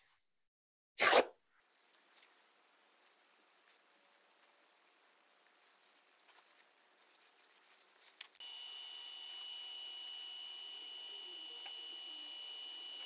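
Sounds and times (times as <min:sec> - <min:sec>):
handling rustles: 0:01.7 - 0:08.4
wood lathe high-pitched whine: 0:08.4 - 0:13.0.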